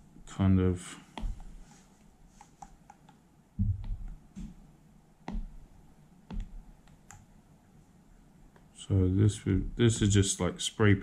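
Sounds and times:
stylus tapping on glass screen: 1.2s - 1.6s, 2.4s - 4.6s, 5.2s - 5.6s, 6.3s - 7.2s.

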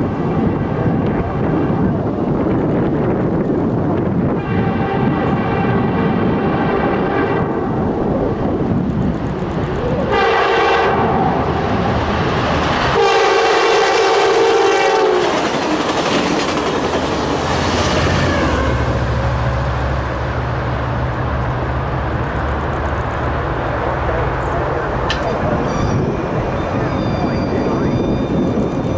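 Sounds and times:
diesel locomotive engine drone: 0.0s - 28.9s
train wheels clattering on rails: 15.1s - 18.6s.

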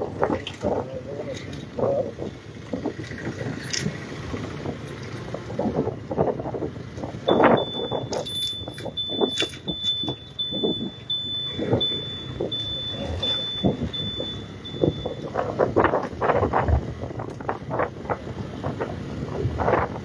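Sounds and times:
motorcycle riding on rough road: 0.0s - 20.0s
wind buffeting microphone: 0.0s - 20.0s
high electronic beep: 7.3s - 15.4s.

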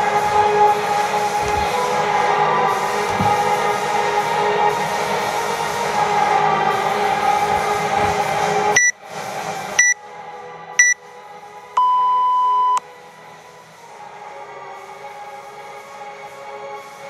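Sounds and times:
music playing: 0.0s - 12.1s
long lower timer beep: 8.8s - 9.0s, 11.8s - 12.8s.

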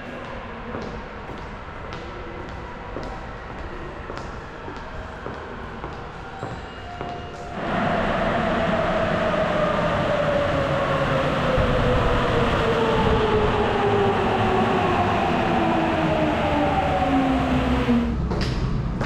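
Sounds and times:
train rumbling: 0.0s - 19.0s
falling whine: 7.6s - 18.2s.

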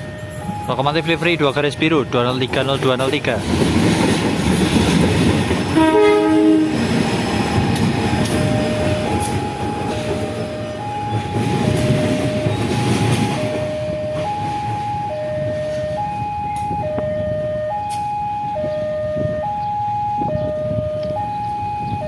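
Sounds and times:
two-tone level crossing alarm: 0.0s - 3.0s, 5.8s - 22.0s
diesel locomotive engine passing: 0.0s - 22.0s
locomotive horn blast: 5.7s - 6.9s.

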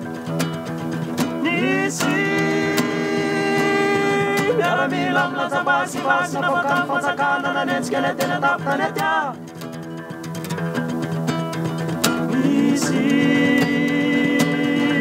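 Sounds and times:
acoustic guitars: 0.0s - 15.0s
men singing in harmony: 1.4s - 9.5s, 12.2s - 15.0s.

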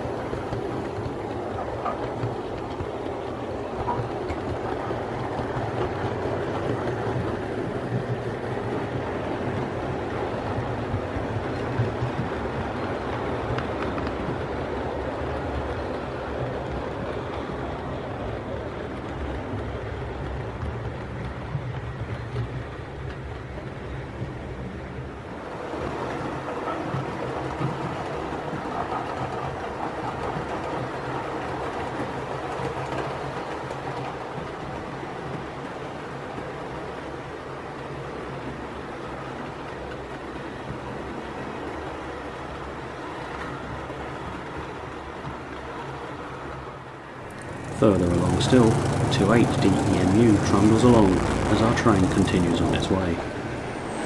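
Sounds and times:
model train wheels rumbling on rail: 0.0s - 54.0s
low hum: 47.3s - 54.0s.

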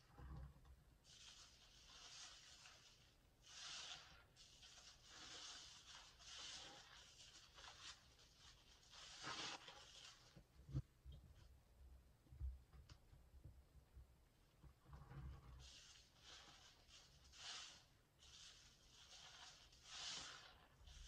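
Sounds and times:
soapy sponge squishing: 1.0s - 10.8s, 15.2s - 21.0s.

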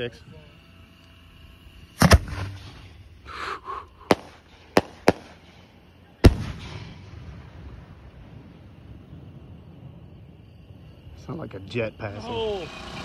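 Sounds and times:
firework sharp cracks: 1.9s - 3.2s, 3.9s - 9.6s
firework shells booming: 1.9s - 3.2s, 3.9s - 10.2s.

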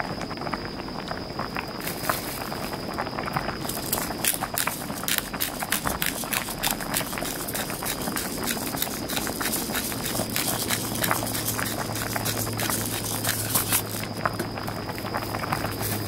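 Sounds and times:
pepper grinder crackling: 3.4s - 14.5s.

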